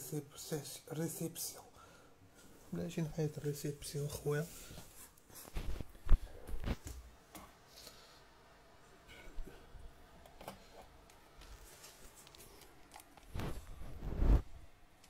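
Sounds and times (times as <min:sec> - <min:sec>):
handling clicks and rustles: 0:10.3 - 0:14.0.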